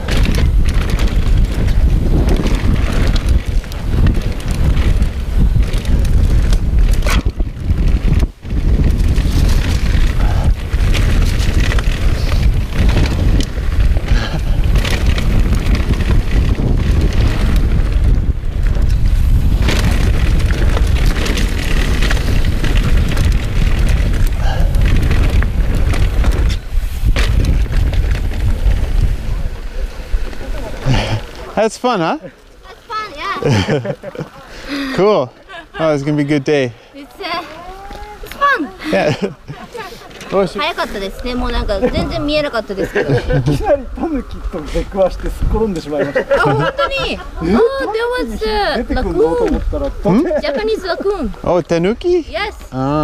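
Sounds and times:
bike knocks and rattles: 0.0 - 29.4
wind rushing over microphone: 0.0 - 31.6, 32.7 - 53.0
bike tyres on dirt: 0.0 - 53.0.

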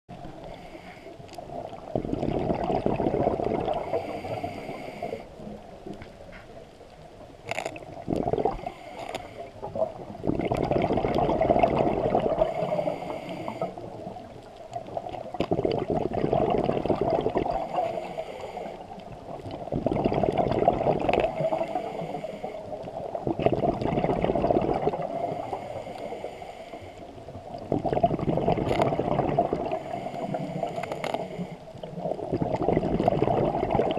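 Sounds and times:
exhaled bubbles gurgling underwater: 0.1 - 33.9
regulator inhalation hiss: 3.8 - 5.3, 12.5 - 13.9, 17.6 - 19.0, 21.3 - 22.7, 25.1 - 27.1.

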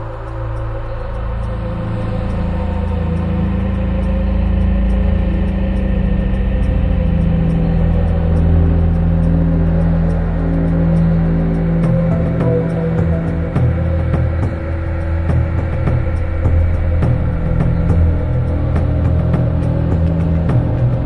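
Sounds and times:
ambient electronic drone music: 0.0 - 21.0.

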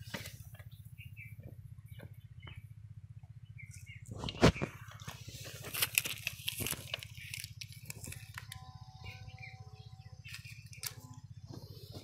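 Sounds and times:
low steady hum: 0.0 - 12.0
foil wrapper crinkling: 4.8 - 8.7.

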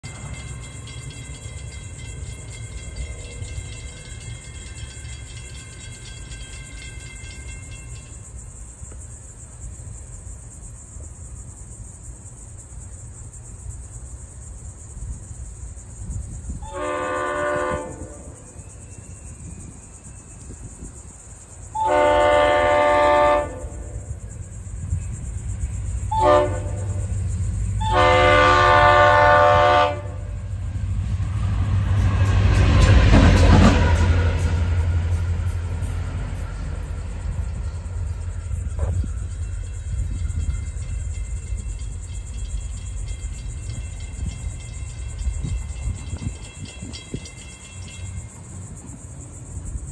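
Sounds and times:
train wheels on rails: 0.0 - 49.9
locomotive horn blasts: 16.6 - 18.5, 21.7 - 24.0, 26.1 - 27.2, 27.8 - 30.4.

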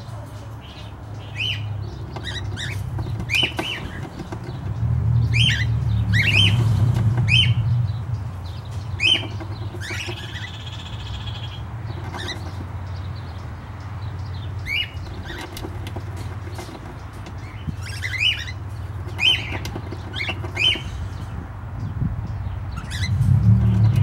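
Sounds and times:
cockatiels chirping: 1.2 - 7.7, 8.9 - 12.7, 14.6 - 21.3, 22.8 - 23.2.

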